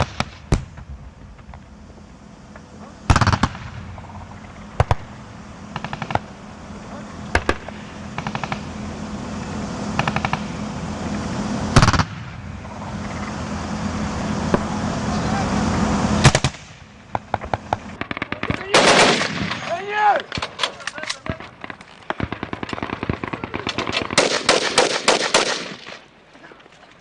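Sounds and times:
distant machine gun bursts: 0.0s - 1.6s, 2.8s - 6.6s, 7.3s - 9.0s, 9.9s - 10.7s, 11.6s - 13.3s, 16.2s - 26.1s
low steady rumble: 0.0s - 27.0s.

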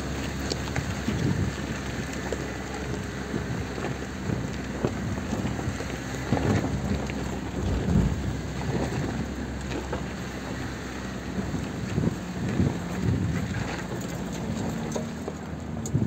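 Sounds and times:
engine running low: 0.0s - 16.0s
tyres crunching on loose stones: 0.0s - 16.0s
heavy thumps over rocks: 3.8s - 10.1s
wind rushing past window: 6.4s - 9.4s.

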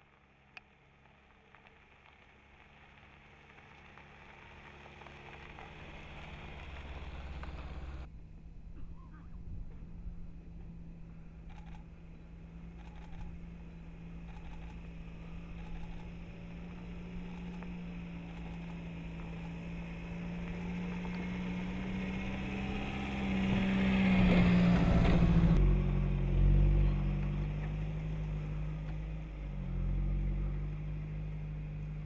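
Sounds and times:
tyres crunching on gravel: 0.0s - 8.1s, 9.8s - 25.6s
low steady engine hum: 0.0s - 32.0s
car engine driving by: 1.6s - 32.0s.

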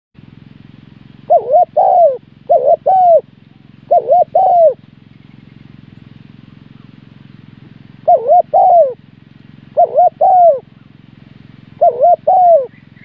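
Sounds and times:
dove cooing: 1.2s - 4.9s, 7.6s - 13.0s.

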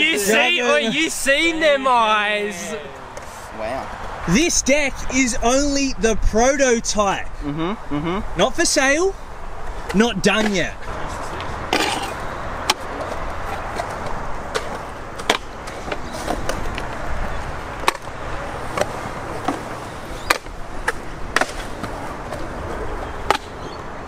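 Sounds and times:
scooter wheels rolling on concrete: 9.6s - 24.0s.

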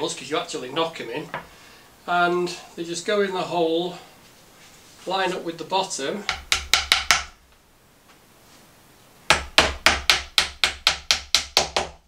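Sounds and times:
hammer tapping nails: 6.3s - 7.4s, 9.3s - 12.0s.

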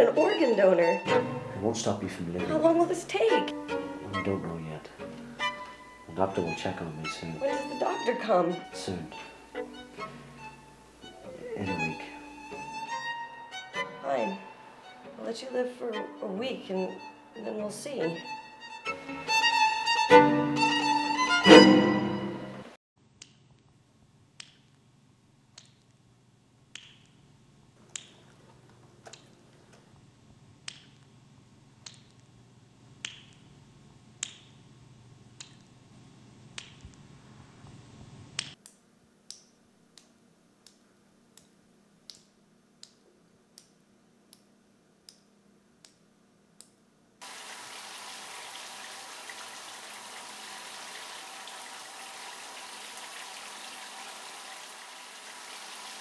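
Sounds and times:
water dripping: 27.9s - 28.3s, 47.2s - 56.0s
steady running water: 47.2s - 56.0s.

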